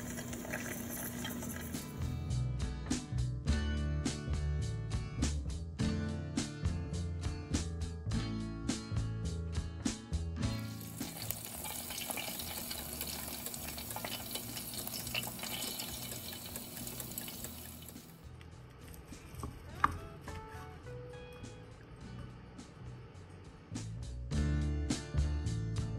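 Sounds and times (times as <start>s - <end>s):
pork sizzling with crackling fat: 0.0s - 2.2s, 10.6s - 18.3s.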